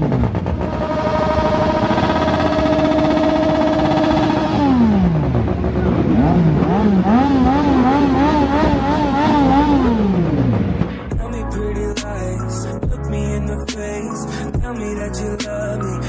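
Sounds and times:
motorcycle engine revving: 0:00.0 - 0:11.2.

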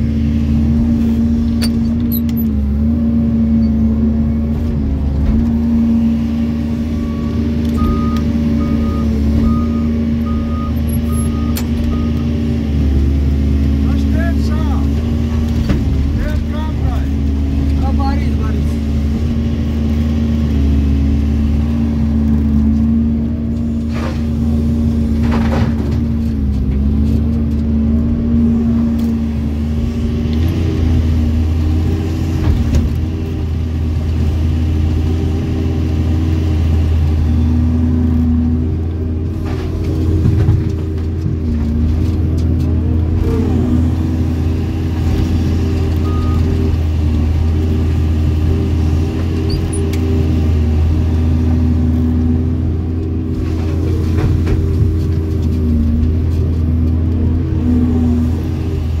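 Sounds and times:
excavator diesel engine running: 0:00.0 - 0:59.0.

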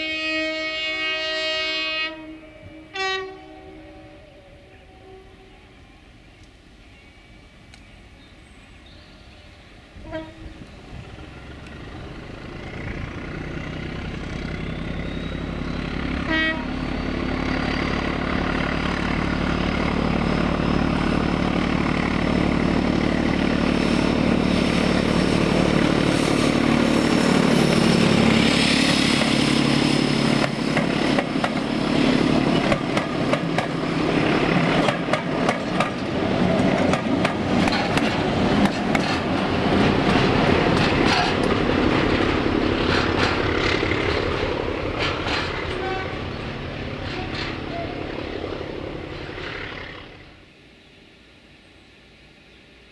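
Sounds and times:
diesel locomotive engine working hard: 0:00.0 - 0:50.7
train wheels clicking over rail joints: 0:25.0 - 0:48.3.

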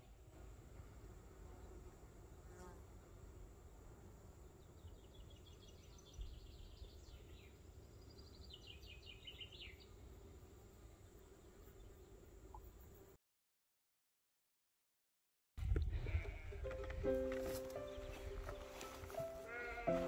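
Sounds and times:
songbird singing: 0:04.3 - 0:13.2, 0:16.1 - 0:20.0.

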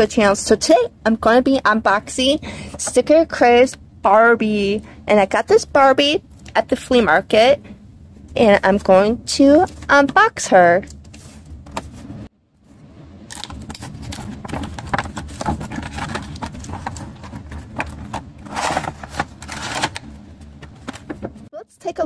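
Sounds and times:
cardboard scraping rustles: 0:13.4 - 0:21.5.

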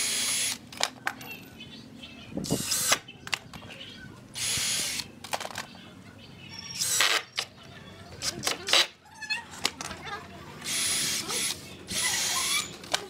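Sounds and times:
cordless drill boring into wood: 0:00.0 - 0:00.6, 0:04.4 - 0:05.0, 0:10.6 - 0:12.8.

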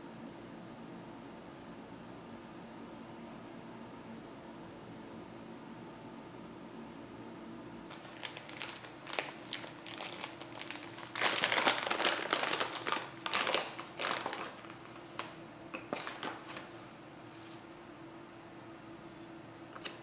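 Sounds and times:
foil bag crinkling: 0:07.9 - 0:17.7.

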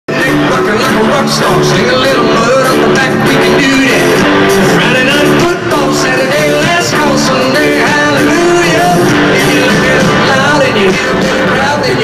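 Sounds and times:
live country-rock band: 0:00.1 - 0:12.0
man singing: 0:00.1 - 0:12.0.

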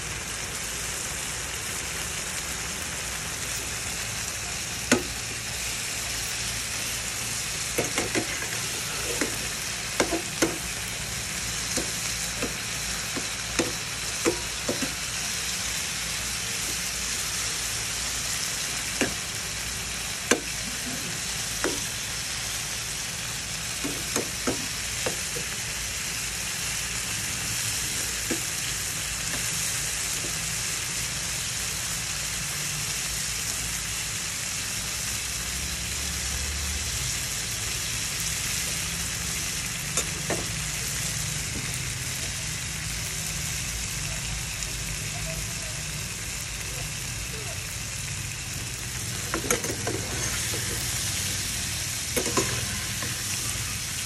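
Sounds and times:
shrimp sizzling in a wok: 0:00.0 - 0:54.0
metal spatula scraping pan: 0:49.1 - 0:53.6.

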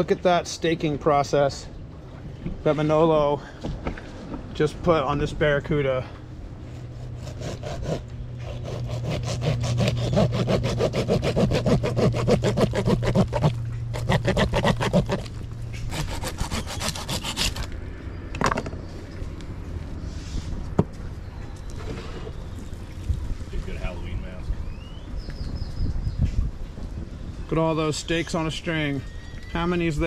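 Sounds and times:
knife sawing through fish: 0:06.7 - 0:17.7.

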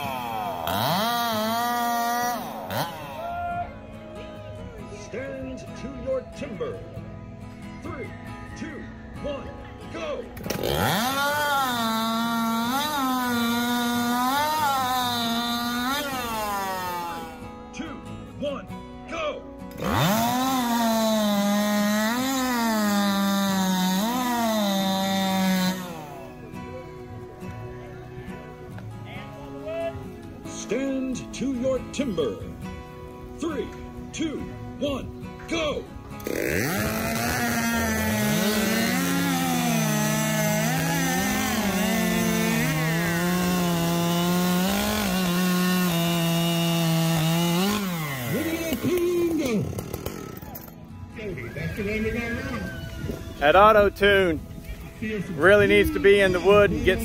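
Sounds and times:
chainsaw cutting through log: 0:00.0 - 0:03.3, 0:10.3 - 0:17.6, 0:19.7 - 0:26.6, 0:36.1 - 0:50.8.

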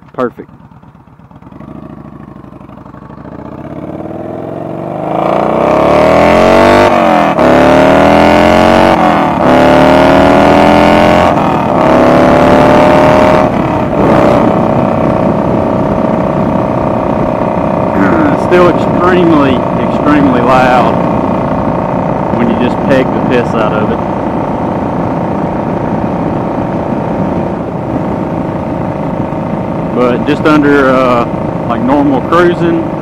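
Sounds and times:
motorcycle engine accelerating hard: 0:00.0 - 0:33.0.

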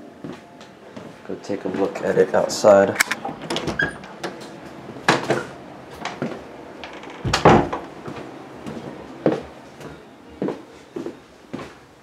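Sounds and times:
doors opening and shutting: 0:02.8 - 0:09.3.

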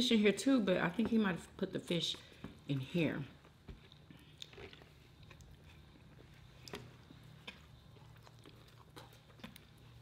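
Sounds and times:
people chewing: 0:03.4 - 0:10.0.

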